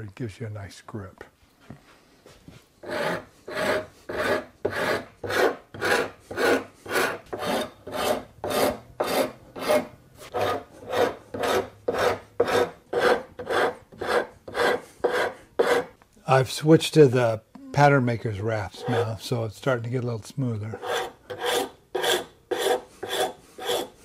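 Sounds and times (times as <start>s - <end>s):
wood rasp filing wood: 2.8s - 16.0s, 18.7s - 19.3s, 20.7s - 24.0s.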